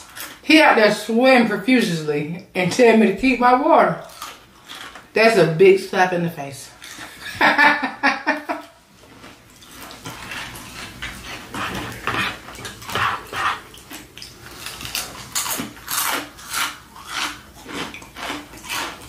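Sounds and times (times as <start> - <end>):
crunchy chewing of fried food: 4.0 - 5.2, 6.7 - 7.4, 8.5 - 19.0.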